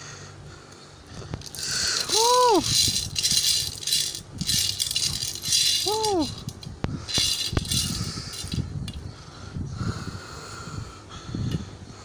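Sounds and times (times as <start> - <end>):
cereal rattling out of toy truck: 1.4 - 8.6.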